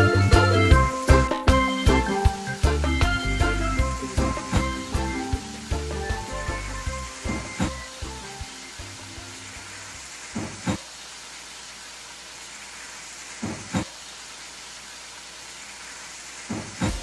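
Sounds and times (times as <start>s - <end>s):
meat sizzling in a wok: 0.0s - 17.0s.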